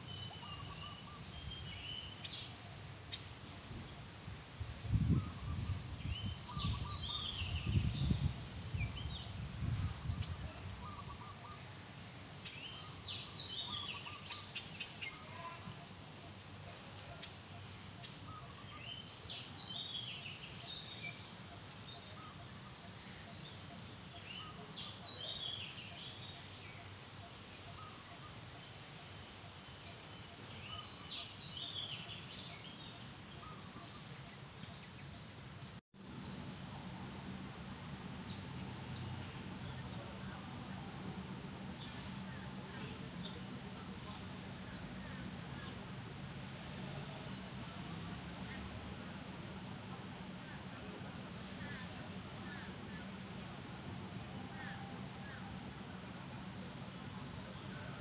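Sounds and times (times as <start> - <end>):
weaver birds chirping: 0.0 - 37.3, 37.9 - 48.7, 49.3 - 58.0
low rumble on microphone: 3.6 - 11.0.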